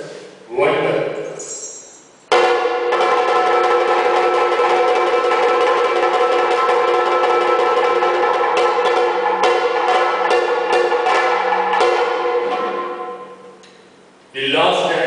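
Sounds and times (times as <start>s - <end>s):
metal percussion ringing rapidly: 1.2s - 13.6s
struck bell-like tone: 1.3s - 2.1s.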